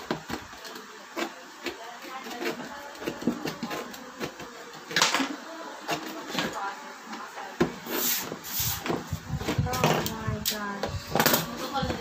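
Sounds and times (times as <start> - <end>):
knife blade cutting cardboard: 1.2 - 4.4.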